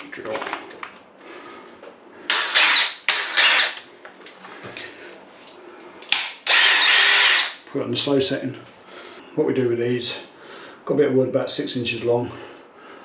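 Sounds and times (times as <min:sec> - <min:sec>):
cordless drill bursts: 0:02.3 - 0:03.8, 0:06.4 - 0:07.6.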